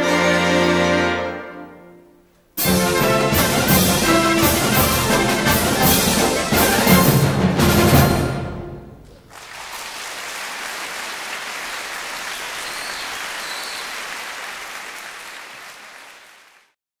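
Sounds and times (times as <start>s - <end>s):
symphonic band final chord: 0.0s - 2.0s, 2.6s - 8.9s
audience applauding: 9.0s - 16.8s.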